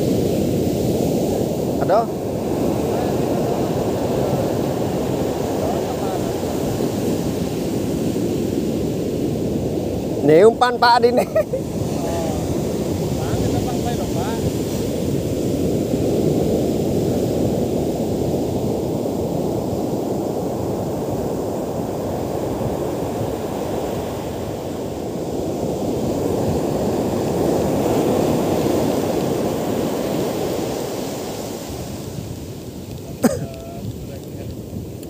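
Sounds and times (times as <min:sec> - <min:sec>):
surf breaking on sand: 0:00.0 - 0:35.0.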